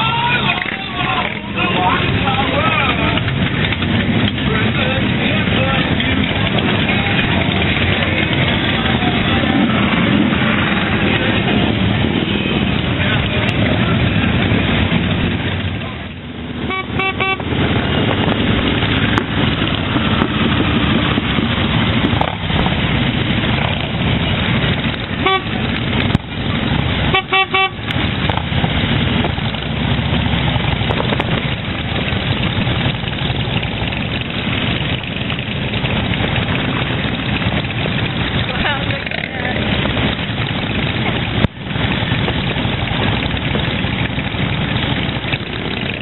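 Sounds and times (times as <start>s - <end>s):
motorcycle engines and road noise: 0.0s - 46.0s
horn toots: 16.6s - 18.1s, 25.1s - 25.8s, 27.0s - 28.0s.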